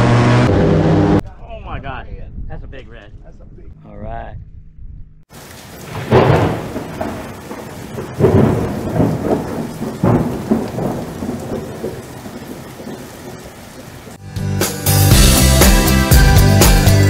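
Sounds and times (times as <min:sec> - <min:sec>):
thunder rolling: 0:05.3 - 0:13.6
rain falling: 0:05.3 - 0:14.2.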